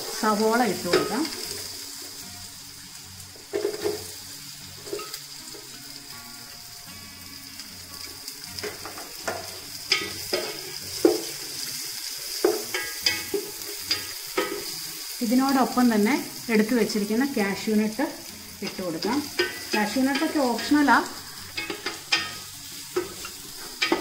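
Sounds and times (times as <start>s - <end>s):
onions sizzling in oil: 0.0s - 24.0s
wooden spatula scraping a pot: 18.6s - 24.0s.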